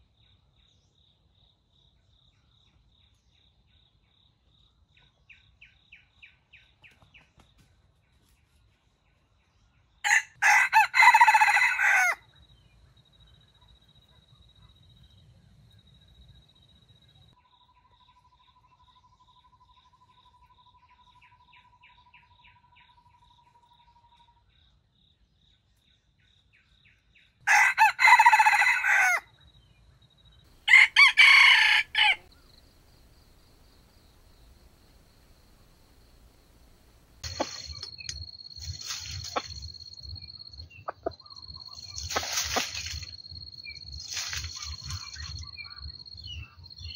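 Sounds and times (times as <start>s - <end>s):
rooster crowing: 10.1s - 12.2s, 27.5s - 29.3s, 30.6s - 33.2s
high insect trill: 30.5s - 46.9s
soft clucking: 40.7s - 43.2s.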